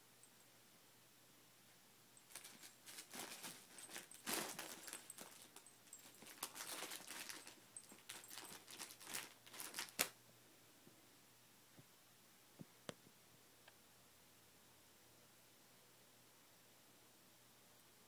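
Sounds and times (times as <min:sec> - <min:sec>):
fabric rustling and crinkling: 0:02.3 - 0:10.1.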